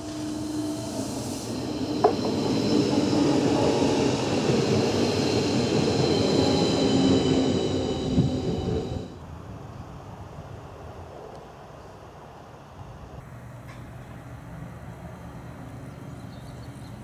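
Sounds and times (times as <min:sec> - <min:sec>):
train wheels rumbling on rails: 0:00.0 - 0:09.2
high train whine: 0:00.0 - 0:11.2, 0:13.2 - 0:17.0.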